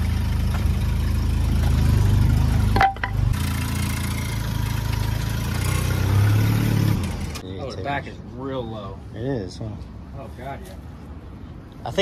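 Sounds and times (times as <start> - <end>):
car engine idling: 0.0 - 5.3.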